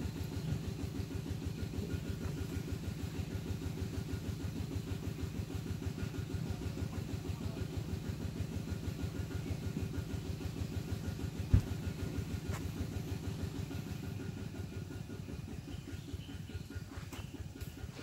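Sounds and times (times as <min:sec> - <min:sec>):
engine idling: 0:00.0 - 0:18.0
thump: 0:11.5 - 0:11.7.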